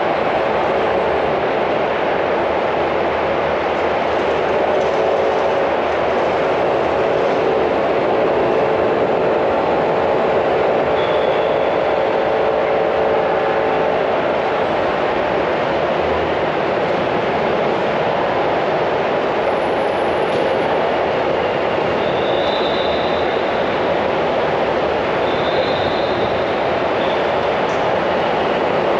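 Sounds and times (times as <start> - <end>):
slow traffic hum: 0.0 - 28.9
faint high squeal: 10.9 - 11.7.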